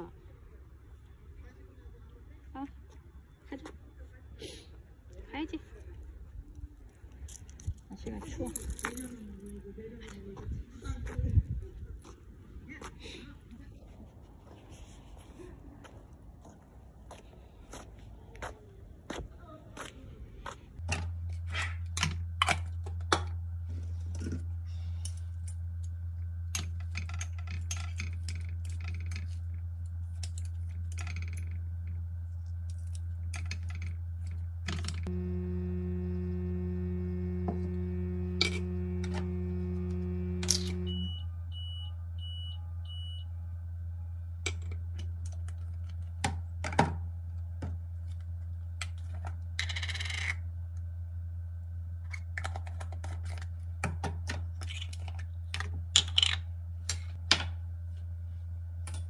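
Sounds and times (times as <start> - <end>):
low electrical hum: 0.0 - 59.0
appliance humming: 31.4 - 41.2
short high beeps: 40.8 - 43.3.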